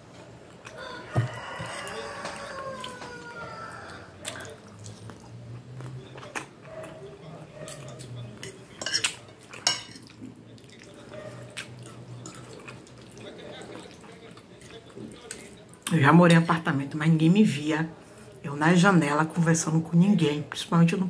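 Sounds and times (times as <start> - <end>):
cutlery clinking on a plate: 8.4 - 10.2.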